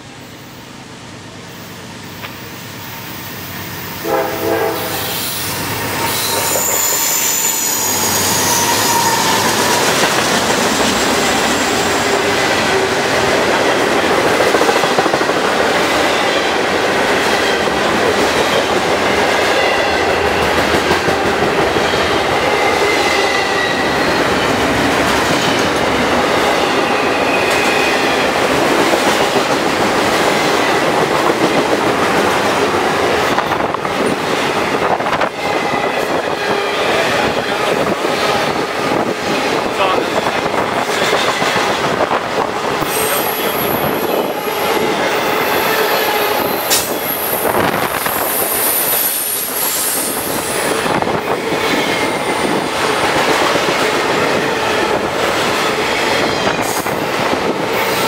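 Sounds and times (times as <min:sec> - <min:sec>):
rolling freight cars: 0:00.0 - 0:58.0
train horn blast: 0:04.0 - 0:09.9
wheel squeals: 0:05.1 - 0:12.1.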